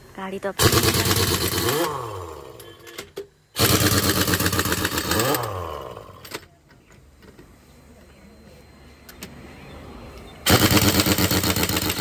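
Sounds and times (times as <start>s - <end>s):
pneumatic impact wrench hammering: 0.6s - 6.5s, 10.4s - 12.0s.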